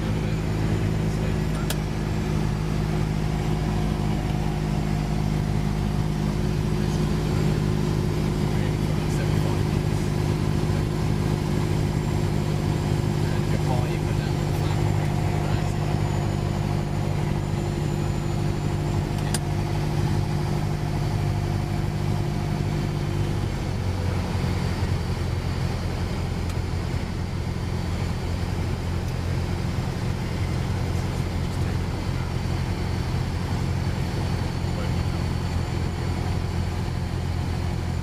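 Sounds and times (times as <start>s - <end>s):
light aircraft engine and propeller: 0.0s - 38.0s.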